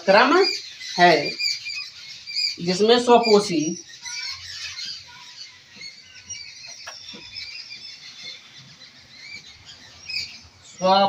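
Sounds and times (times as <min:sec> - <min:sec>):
small birds chirping: 0:00.0 - 0:11.0
marker squeaking on whiteboard: 0:03.9 - 0:10.4.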